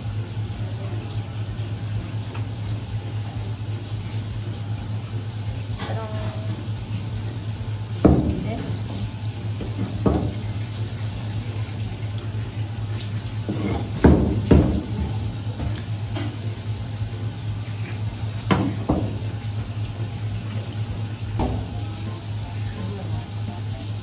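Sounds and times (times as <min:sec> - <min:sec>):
tap water running onto plastic: 0:00.0 - 0:24.0
knocks on cutting board: 0:08.0 - 0:08.6, 0:09.6 - 0:10.4, 0:13.5 - 0:15.0, 0:18.5 - 0:19.2, 0:21.4 - 0:21.7.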